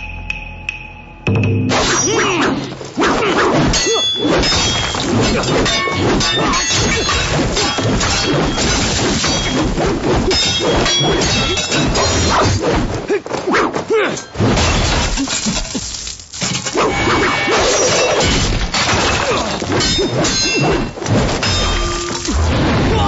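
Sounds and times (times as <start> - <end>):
weapon clashes and thuds: 1.6 - 13.0, 17.8 - 23.0.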